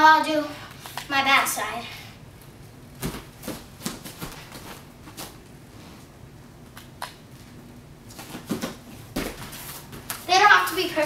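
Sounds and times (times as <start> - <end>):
soft thuds on gymnastics mat: 8.3 - 10.2.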